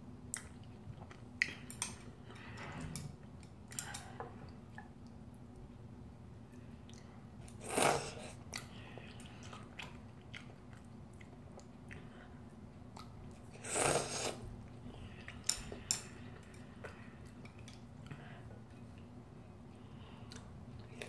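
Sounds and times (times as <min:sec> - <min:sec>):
quiet chewing: 0:06.8 - 0:21.0
child slurping noodles: 0:07.6 - 0:08.4, 0:13.6 - 0:14.4.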